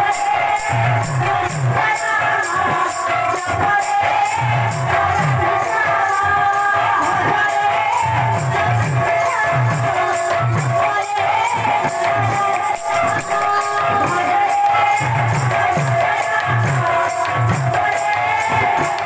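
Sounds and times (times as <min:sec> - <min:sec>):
small cymbals jingling: 0:00.0 - 0:19.0.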